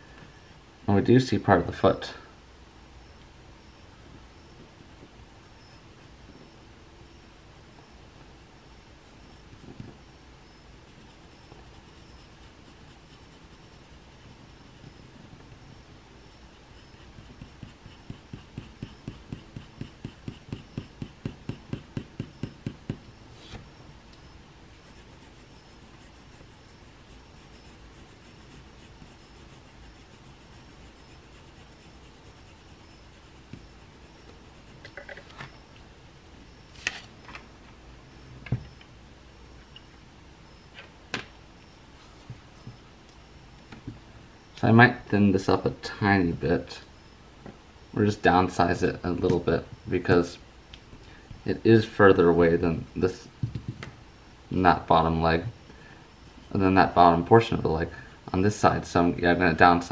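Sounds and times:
pencil shading on paper: 0:10.8 - 0:15.4, 0:16.3 - 0:23.0, 0:24.7 - 0:34.8, 0:56.0 - 0:57.6.

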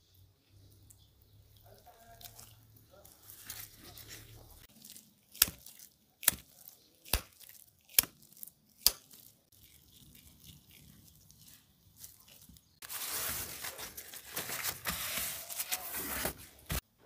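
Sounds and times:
soft handling of meat: 0:00.0 - 0:16.8
wet slaps of ground meat: 0:05.3 - 0:08.2, 0:08.8 - 0:09.3.

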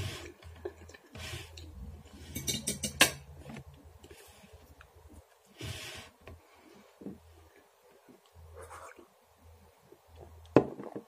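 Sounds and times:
fork clinking against dishware: 0:02.3 - 0:03.2.

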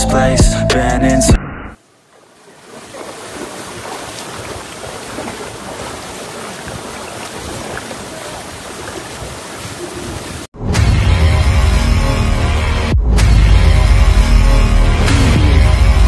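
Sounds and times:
waterfall rushing: 0:01.8 - 0:10.5.

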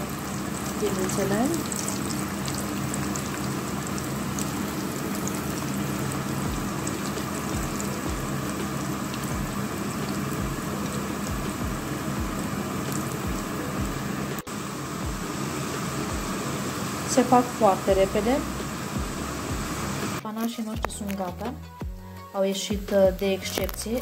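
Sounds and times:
doughnuts sizzling in hot oil: 0:00.0 - 0:20.2.

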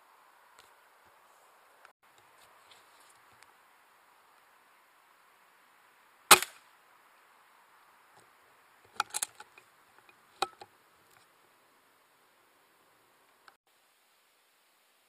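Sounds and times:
air rifle shot: 0:06.3 - 0:06.6.

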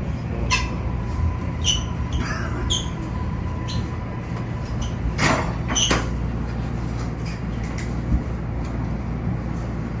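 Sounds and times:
brake squeals: 0:01.5 - 0:03.9.

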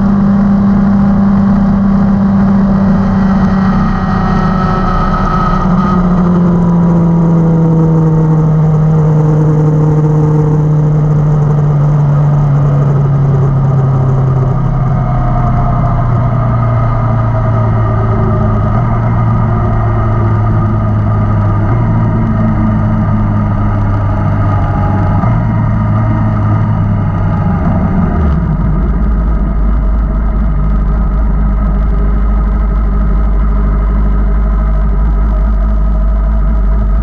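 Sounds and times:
motorcycle engine running: 0:00.0 - 0:37.0
wind noise: 0:00.0 - 0:37.0
motorcycle engine idling: 0:12.4 - 0:37.0.

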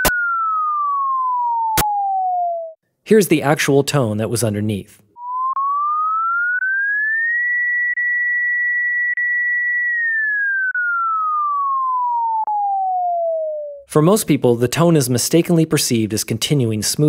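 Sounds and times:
gliding sine tone: 0:00.0 - 0:02.8, 0:05.2 - 0:13.9.

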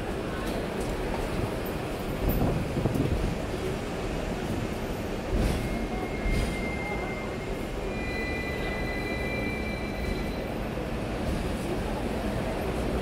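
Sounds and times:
tram rumbling on rails: 0:00.0 - 0:13.0
high squeal from running gear: 0:05.6 - 0:10.6.

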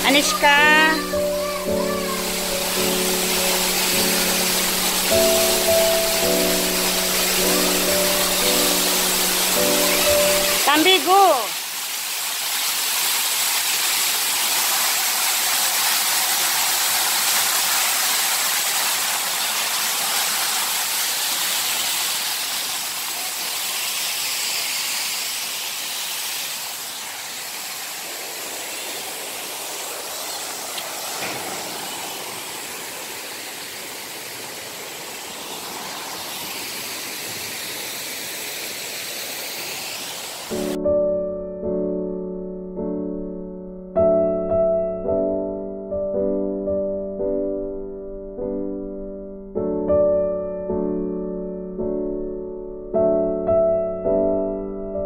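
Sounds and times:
fountain water splashing: 0:00.0 - 0:40.8.

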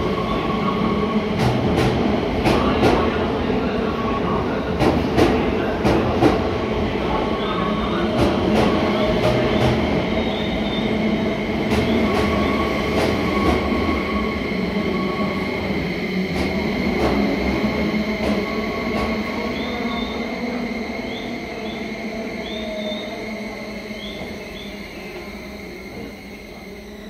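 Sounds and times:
train rumble: 0:00.0 - 0:27.0.

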